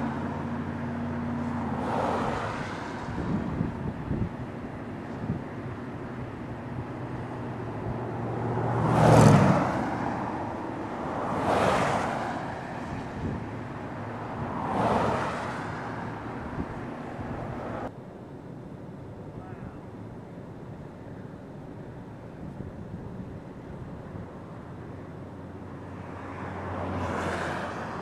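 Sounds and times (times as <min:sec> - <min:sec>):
vehicles passing by: 0:00.0 - 0:28.0
wind noise on microphone: 0:01.4 - 0:17.9, 0:22.3 - 0:24.6.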